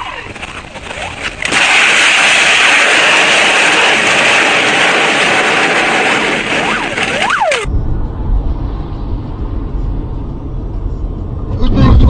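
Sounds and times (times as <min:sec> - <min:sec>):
metal scraping along road: 0:00.0 - 0:01.6
car driving on highway rumble: 0:02.3 - 0:12.0.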